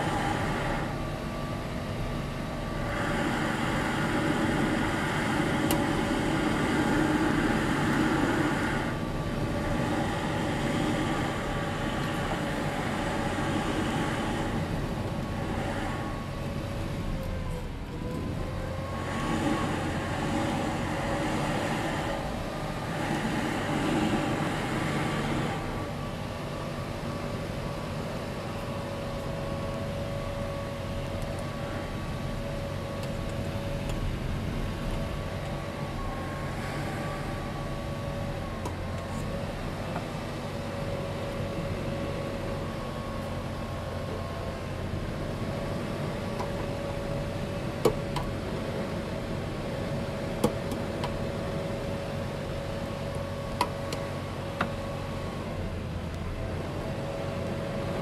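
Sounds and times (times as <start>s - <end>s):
leaf blower engine running: 2.7s - 16.2s, 18.8s - 27.2s
rush of air: 2.7s - 16.3s, 18.9s - 26.1s.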